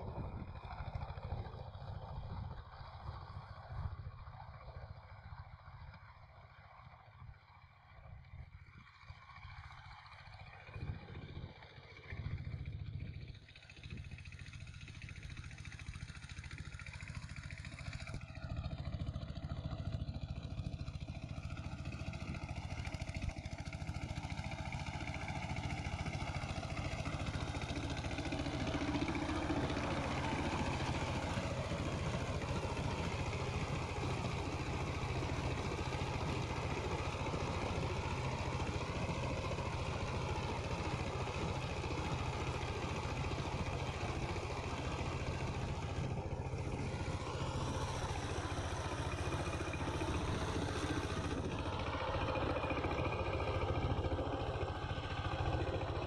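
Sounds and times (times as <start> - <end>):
diesel engine chugging: 0.0 - 56.0
tiller churning soil: 19.2 - 56.0.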